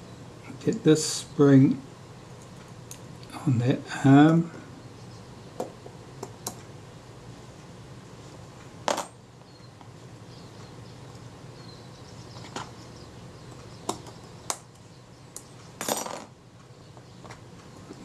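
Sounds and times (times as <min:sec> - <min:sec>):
small metallic clicks and taps: 0:05.6 - 0:06.7.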